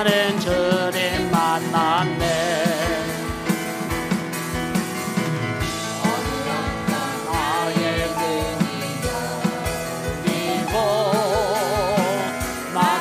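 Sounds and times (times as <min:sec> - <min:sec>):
live band with drum beat: 0:00.0 - 0:13.0
group singing praise song: 0:05.8 - 0:13.0.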